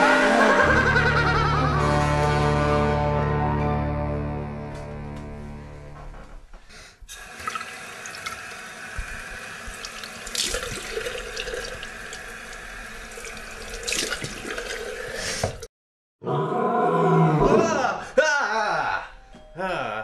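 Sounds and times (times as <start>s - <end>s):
tap running into basin: 7.1s - 15.7s
water splashing: 7.2s - 15.6s.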